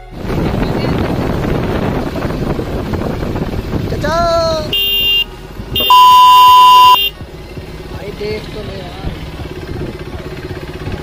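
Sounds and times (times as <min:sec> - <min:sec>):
wind noise: 0:00.1 - 0:06.8
motorcycle engine: 0:00.2 - 0:11.0
motorcycle horn: 0:04.7 - 0:07.2.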